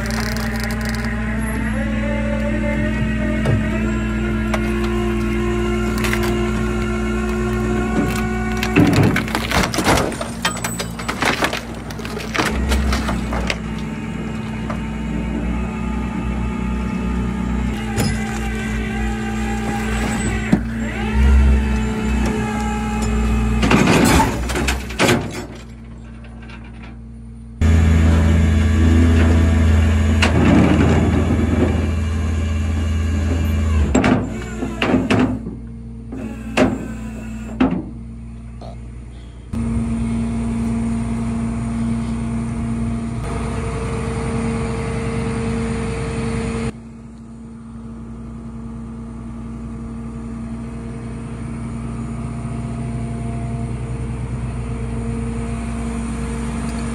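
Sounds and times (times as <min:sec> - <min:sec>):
truck engine drone: 0:00.0 - 0:56.9
metallic knocks and clanks: 0:08.7 - 0:13.8
steady hum: 0:34.4 - 0:56.9.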